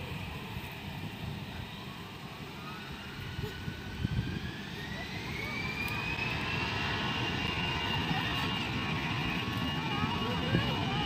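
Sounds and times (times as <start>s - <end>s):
jet engine whine rising: 0.0s - 11.0s
low engine rumble: 0.0s - 11.0s.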